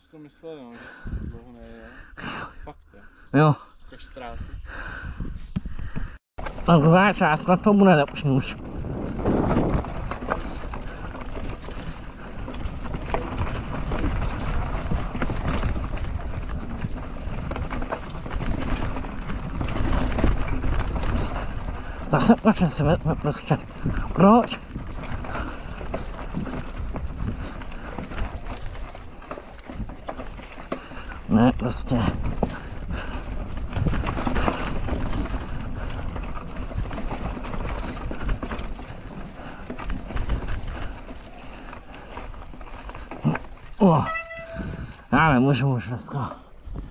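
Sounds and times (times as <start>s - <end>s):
bike tyres rumbling on dirt: 4.7s - 46.9s
bike knocks and clatters: 6.4s - 22.4s, 23.3s - 41.4s.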